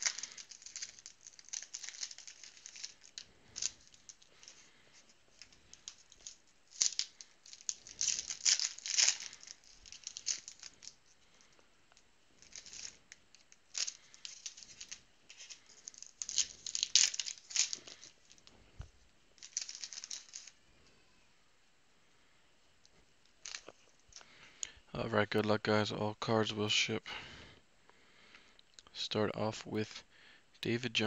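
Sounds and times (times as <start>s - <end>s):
foil wrappers crinkling: 0.0s - 20.6s, 23.2s - 24.8s.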